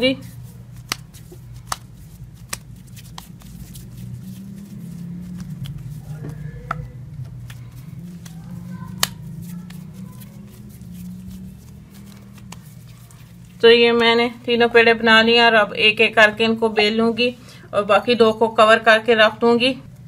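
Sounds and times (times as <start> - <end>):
steady low hum: 0.0 - 20.0
hands tapping dough on board: 0.8 - 3.4, 5.6 - 7.6.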